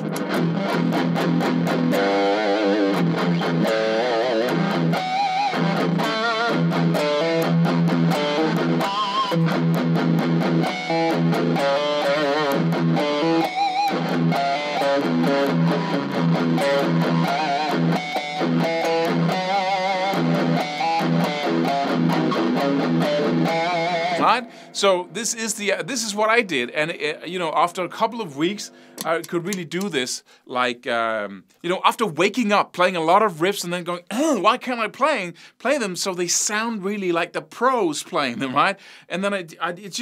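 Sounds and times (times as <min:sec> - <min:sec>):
distorted electric guitar riff: 0:00.0 - 0:25.4, 0:28.6 - 0:29.5.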